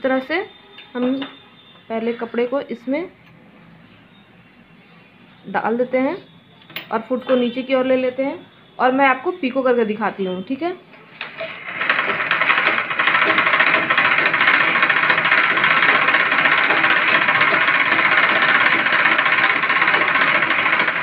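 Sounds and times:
sewing machine stitching: 11.1 - 21.0.

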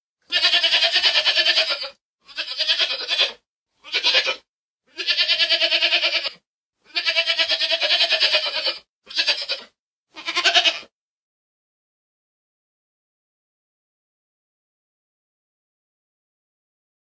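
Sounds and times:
goat bleating: 0.2 - 10.9.

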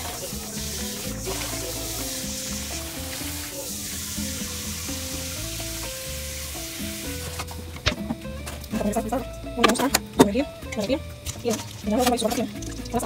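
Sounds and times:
steady high hiss: 0.0 - 7.8
instrumental background music: 0.0 - 13.0.

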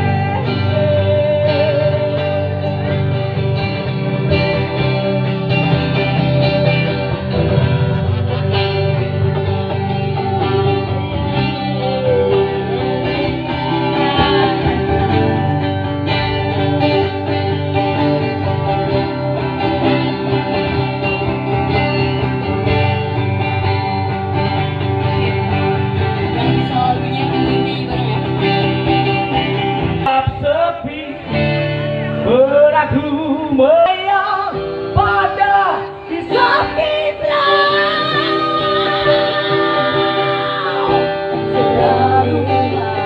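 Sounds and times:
electric guitar: 0.0 - 43.0
live band playing amplified music: 0.0 - 43.0.

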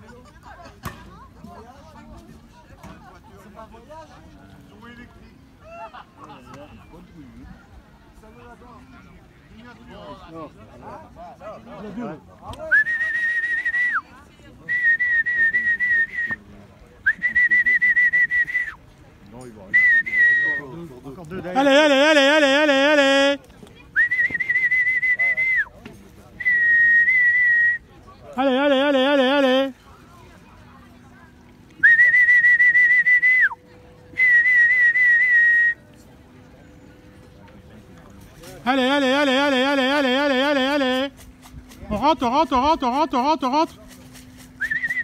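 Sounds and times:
person whistling high notes: 31.8 - 35.8, 44.5 - 45.0.

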